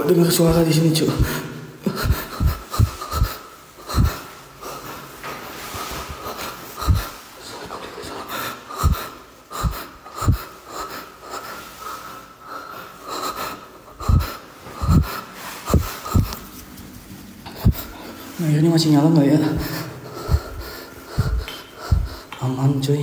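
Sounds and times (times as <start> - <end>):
person breathing heavily: 0.5 - 16.5, 17.5 - 18.4, 19.2 - 22.4
low thumps: 2.0 - 4.2, 6.8 - 7.1, 14.0 - 15.1, 15.7 - 16.4, 17.6 - 17.9, 19.5 - 22.2.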